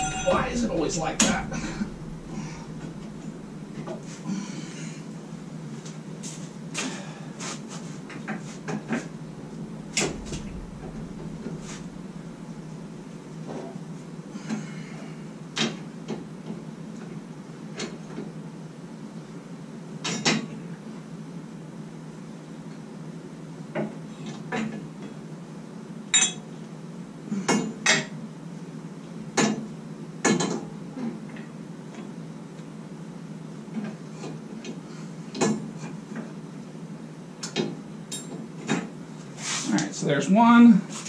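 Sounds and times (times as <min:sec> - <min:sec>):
metal clinks and knocks: 0:00.0 - 0:03.9
steady low hum: 0:00.0 - 0:20.0, 0:20.6 - 0:27.5.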